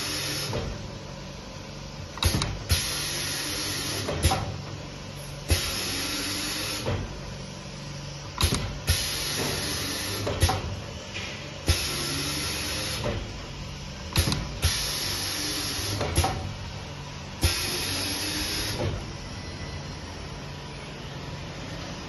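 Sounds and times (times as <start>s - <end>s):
machine hissing: 2.2s - 4.6s, 5.2s - 7.1s, 8.4s - 10.8s, 11.6s - 13.3s, 14.1s - 16.5s, 17.3s - 19.9s.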